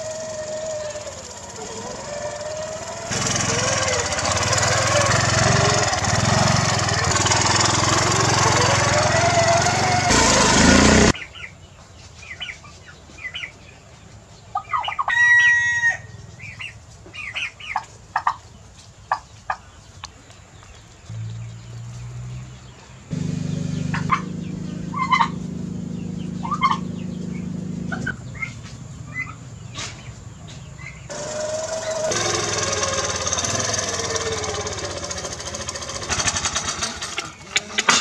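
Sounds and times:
small motorcycle engine: 0:00.0 - 0:11.2, 0:21.1 - 0:38.0
turkeys calling: 0:00.0 - 0:11.5, 0:14.5 - 0:18.5, 0:23.1 - 0:38.0.

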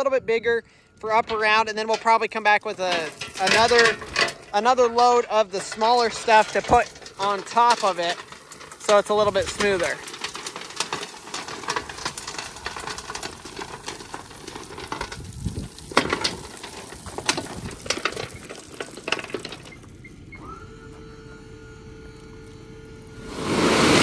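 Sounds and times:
gravel rattling: 0:00.0 - 0:21.0
gravel sliding out: 0:01.0 - 0:20.5, 0:22.2 - 0:24.0
hydraulic pump whine: 0:19.7 - 0:24.0.

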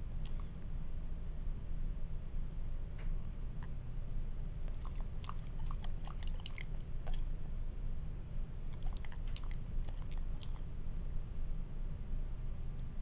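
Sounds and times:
steady low hum: 0:00.0 - 0:13.0
mouth clicks and smacks: 0:00.2 - 0:00.6, 0:04.6 - 0:07.4, 0:08.7 - 0:10.7
dog chewing: 0:04.6 - 0:07.4, 0:08.7 - 0:10.7.

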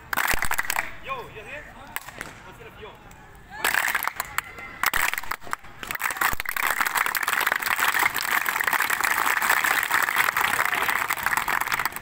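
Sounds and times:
crowd applauding: 0:03.6 - 0:12.0.

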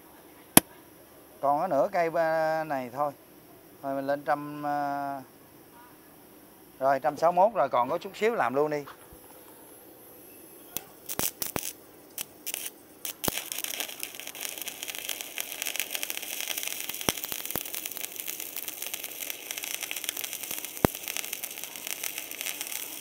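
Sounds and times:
welding arc crackling: 0:10.8 - 0:23.0
welding electrode striking pops: 0:10.8 - 0:23.0.

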